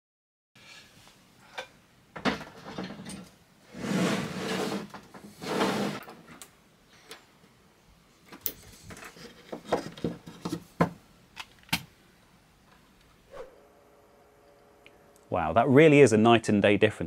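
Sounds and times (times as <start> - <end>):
metal case scraping slide: 2.7 - 6.1.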